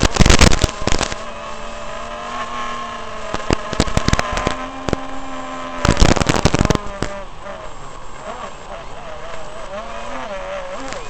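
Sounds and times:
harsh crackling bursts: 0.0s - 11.0s
quadcopter motors whining: 0.0s - 11.0s.

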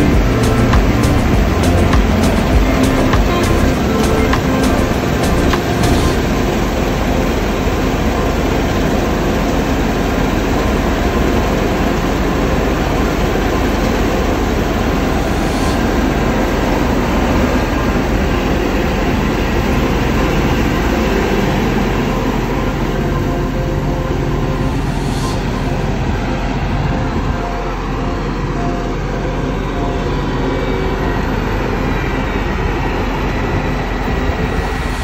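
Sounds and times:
combine harvester running: 0.0s - 35.0s.

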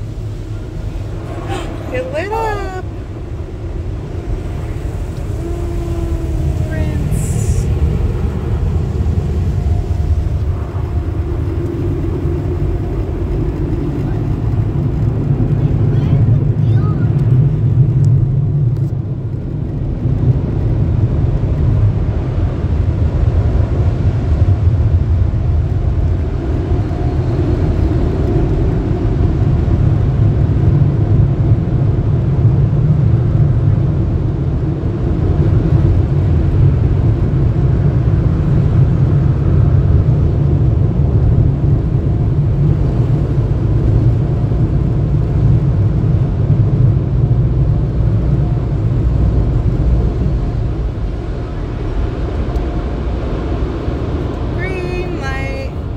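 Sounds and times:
car wash dryer blowers: 0.0s - 55.9s.

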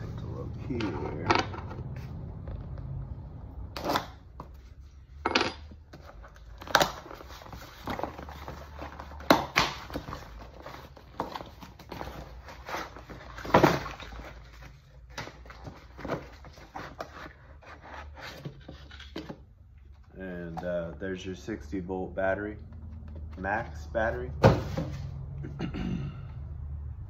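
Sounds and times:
cardboard flaps rustling and scraping: 5.9s - 19.5s, 24.4s - 25.2s.

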